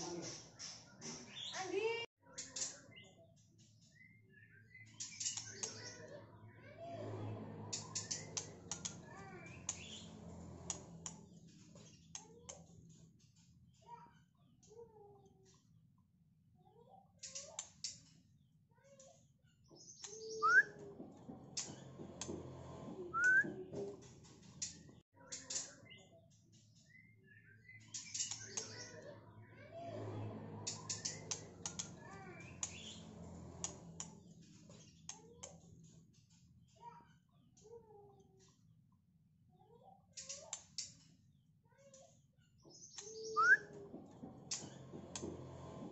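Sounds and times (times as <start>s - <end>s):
bird chirps: 19.7s - 20.7s, 42.6s - 43.8s.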